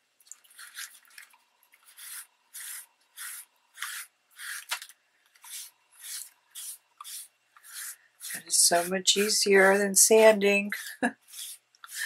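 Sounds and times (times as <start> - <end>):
cloth rubbing on paper: 1.8 - 4.7, 5.4 - 12.0.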